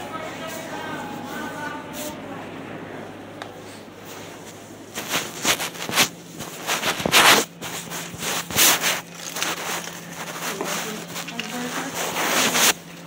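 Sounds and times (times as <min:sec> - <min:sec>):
coat fabric rubbing on microphone: 0:04.0 - 0:12.9.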